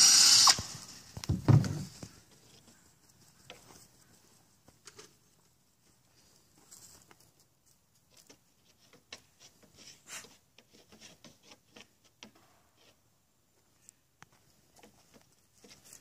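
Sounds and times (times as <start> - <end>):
goat hooves tapping on wood: 1.1 - 6.0, 6.7 - 13.0, 14.3 - 16.0.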